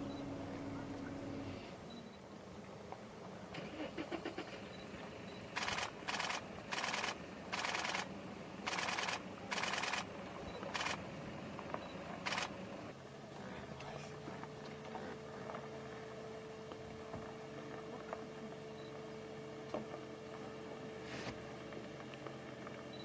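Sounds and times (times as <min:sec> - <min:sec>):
camera shutter bursts: 0:05.5 - 0:11.0, 0:12.2 - 0:12.6.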